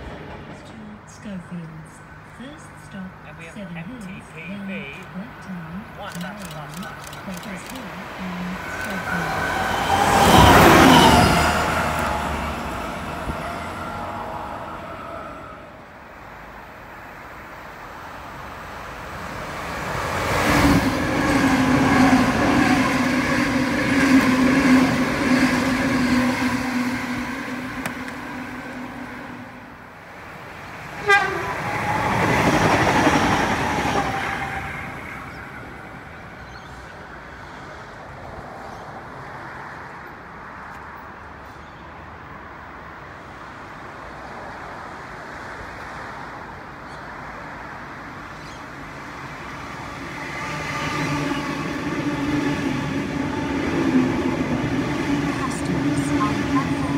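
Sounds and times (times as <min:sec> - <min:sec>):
train passing rumble: 0:00.0 - 0:56.9
train horn: 0:31.0 - 0:32.6.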